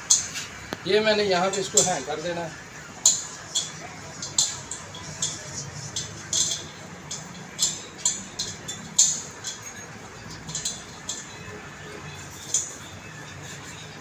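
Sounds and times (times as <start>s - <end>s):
metal fitting clicking and clinking: 3.1s - 11.6s.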